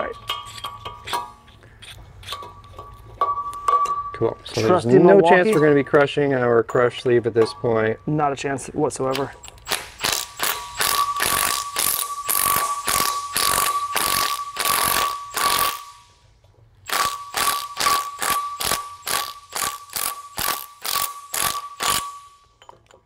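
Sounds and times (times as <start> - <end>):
impact wrench hammering: 9.5 - 16.1, 16.8 - 23.0.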